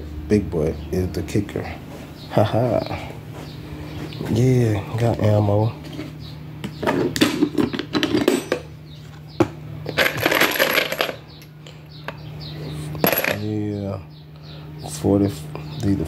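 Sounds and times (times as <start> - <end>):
metal cartridges clinking in a can: 10.0 - 11.2.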